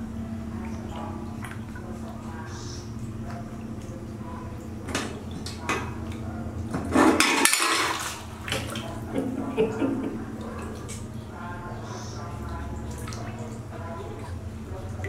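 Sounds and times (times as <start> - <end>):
water splashing in plastic basin: 0.0 - 15.0.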